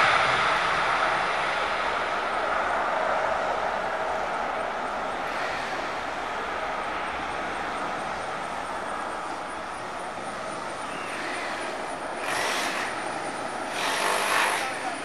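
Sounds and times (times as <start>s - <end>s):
sudden loud rush of noise: 0.0s - 7.1s
jet engines at takeoff: 0.0s - 15.0s.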